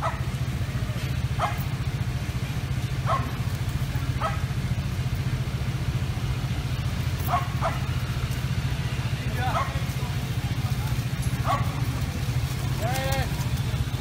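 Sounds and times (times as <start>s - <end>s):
dog barking: 0.0s - 0.4s, 1.3s - 1.8s, 3.0s - 3.4s, 4.1s - 4.6s, 7.2s - 8.0s, 9.5s - 9.8s, 11.4s - 11.8s
low rumble of traffic: 0.0s - 14.0s.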